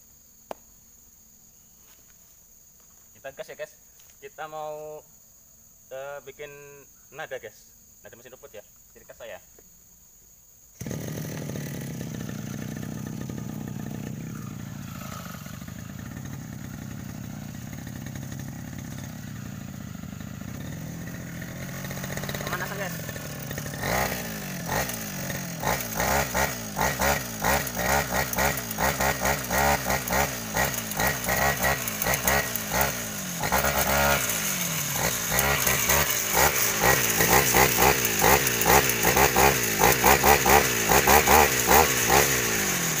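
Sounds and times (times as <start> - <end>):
brush cutter engine revving: 10.8 - 43.0.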